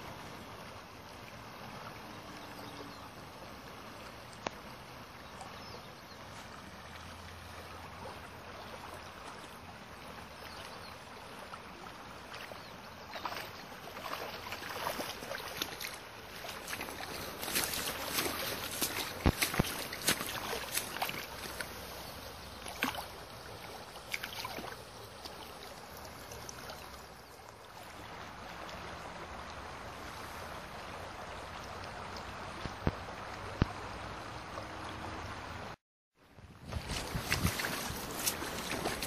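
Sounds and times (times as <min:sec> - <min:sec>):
river rushing over stones: 0:11.0 - 0:35.8, 0:36.6 - 0:39.0.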